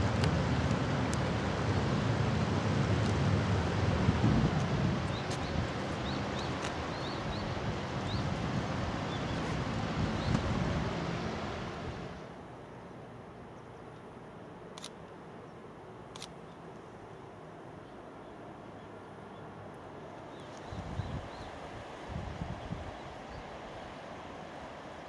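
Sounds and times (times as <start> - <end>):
river rushing over stones: 0.0 - 12.4, 20.2 - 25.0
outdoor ambience: 0.0 - 25.0.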